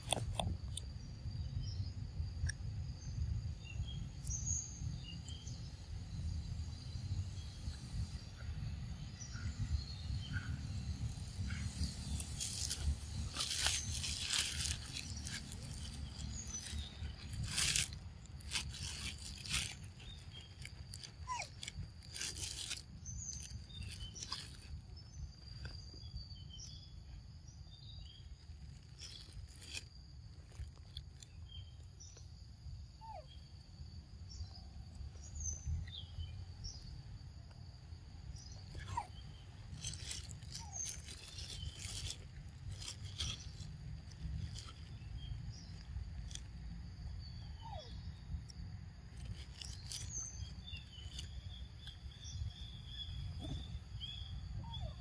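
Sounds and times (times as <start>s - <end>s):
monkey biting and chewing fruit: 0.0s - 0.8s, 11.1s - 24.6s.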